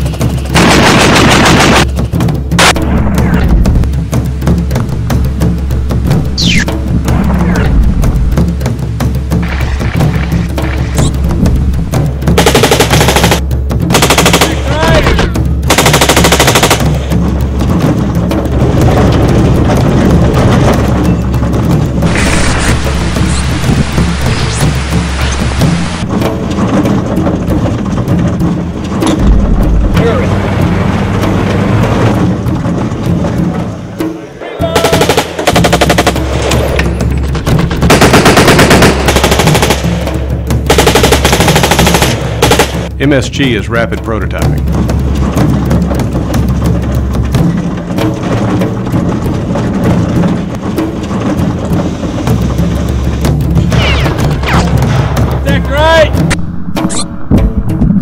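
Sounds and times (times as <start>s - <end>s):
steady low rumble: 0.0s - 34.0s, 35.6s - 58.0s
machine gun automatic fire: 0.5s - 1.8s, 12.4s - 14.7s, 15.7s - 17.0s, 37.8s - 40.0s, 40.7s - 42.9s
machine gun bursts: 15.7s - 16.9s.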